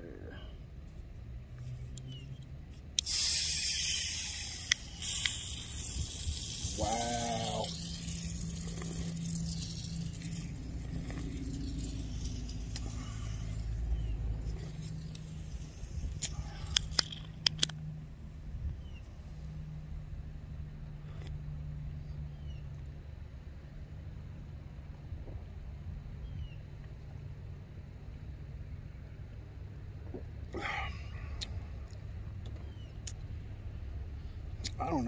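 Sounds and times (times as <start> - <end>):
low steady hum: 0.0 - 35.0
can cracking open with hiss: 3.0 - 13.6, 14.6 - 17.8
sharp clicks: 16.0 - 17.9.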